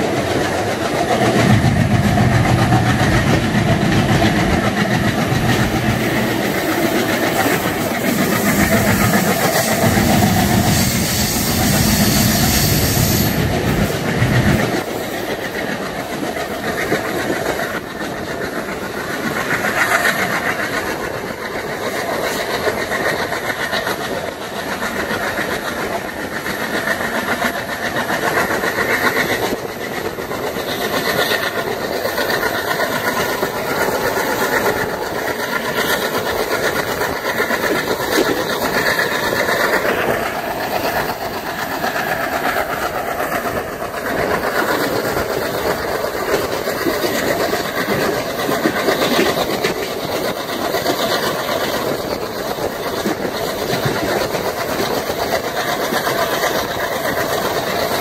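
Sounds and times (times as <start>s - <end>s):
diesel locomotive chugging: 0.0s - 58.0s
train wheels clattering on track: 0.0s - 58.0s.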